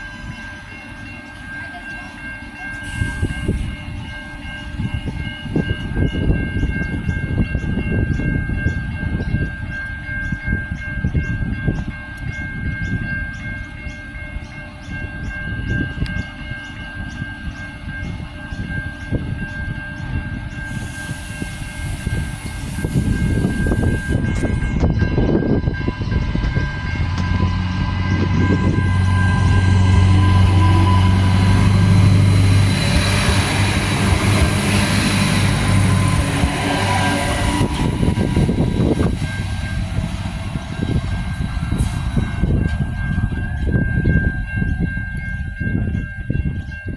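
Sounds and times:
diesel railcar engine and wheels: 0.0 - 46.9
steady high tone: 0.0 - 46.9
steady low drone: 11.0 - 46.8.

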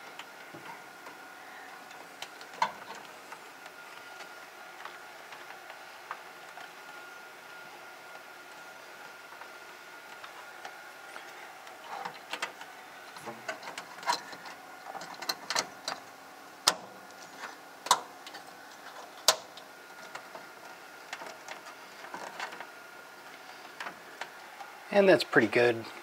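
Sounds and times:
cables and connectors clicking: 10.2 - 22.7.

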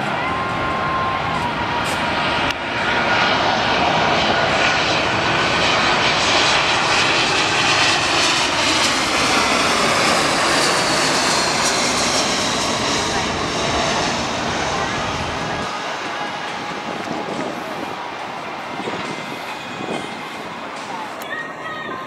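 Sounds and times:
jet airliner passing overhead: 0.0 - 22.0.

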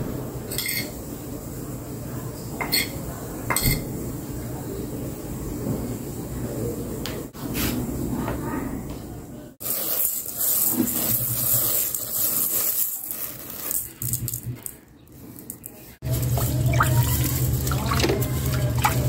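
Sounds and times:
water running: 16.0 - 19.0.

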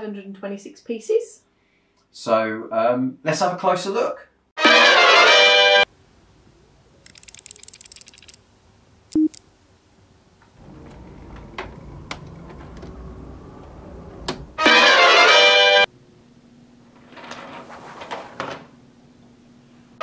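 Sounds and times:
brass music sting: 4.6 - 5.9, 14.6 - 15.9
small plastic clicks: 7.0 - 8.4.

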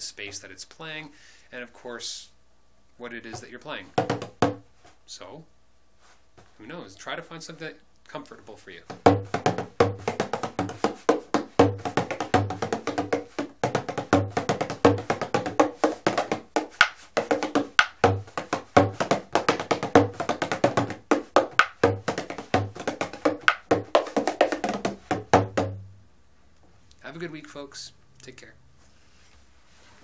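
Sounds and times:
frame drum played fast: 3.3 - 4.6, 8.8 - 25.9.

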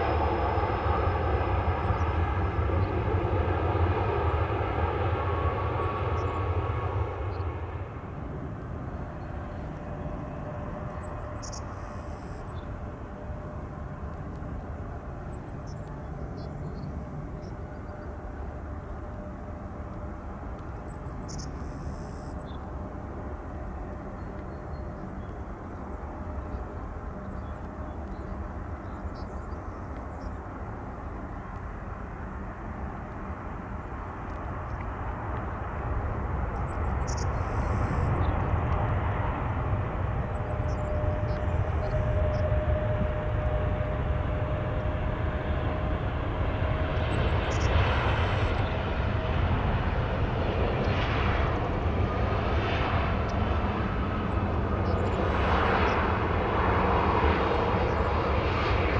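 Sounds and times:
jet engines whining: 0.0 - 28.8, 30.6 - 58.9
distant jet engines hum: 0.0 - 58.9.

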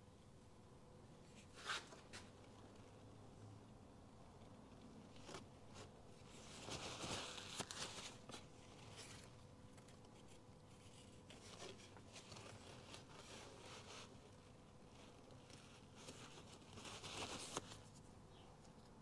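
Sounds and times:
scratchy rustle: 5.1 - 18.1.

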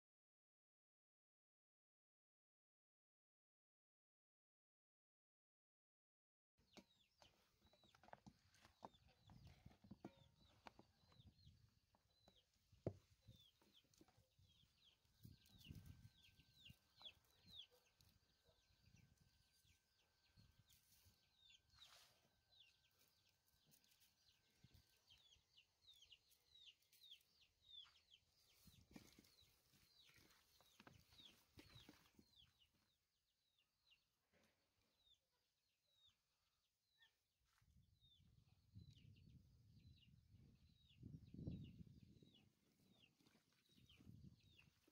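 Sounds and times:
faint bird chirping: 6.7 - 35.3.

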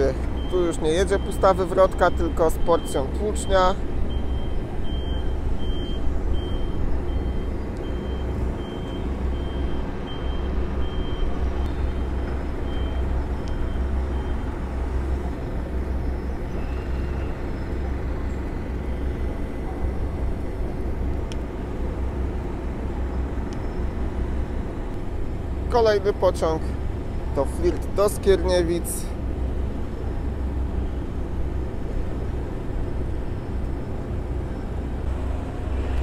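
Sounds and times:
reversing alarm beeping: 0.4 - 14.5.

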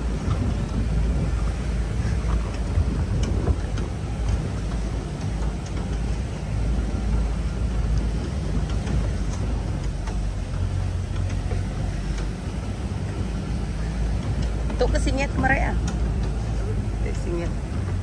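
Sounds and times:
faint clicks and rattles: 0.0 - 18.0
vehicle engine and tyres rumbling: 0.0 - 18.0.

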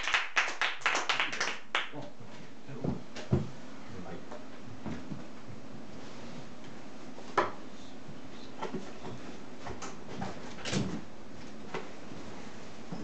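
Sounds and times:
low room noise: 0.0 - 13.0.

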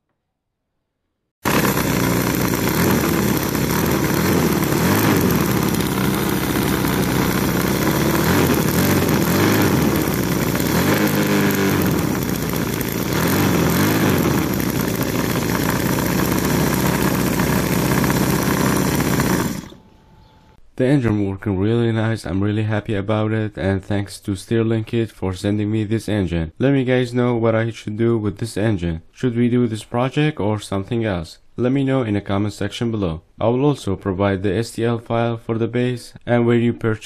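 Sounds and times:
model gasoline engine running: 1.4 - 19.8.

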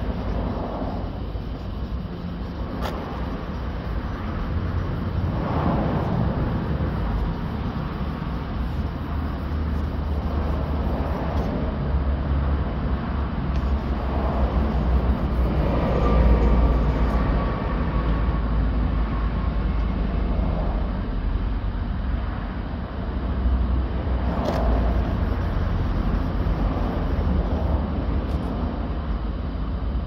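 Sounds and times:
wind noise: 0.0 - 21.2
low rumble of traffic: 0.0 - 30.0.

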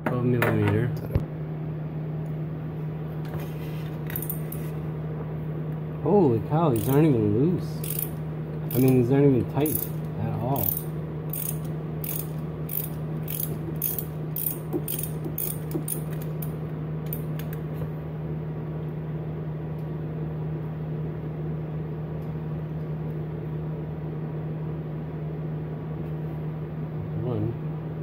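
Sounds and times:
steady low hum: 0.0 - 28.0
ratchet wrench clicking: 4.1 - 4.6, 6.8 - 7.0, 7.8 - 9.0, 9.6 - 10.0, 10.6 - 16.5.

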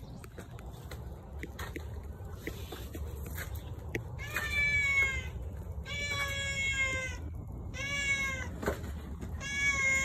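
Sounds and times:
cat meowing: 4.2 - 8.6, 9.4 - 10.0.

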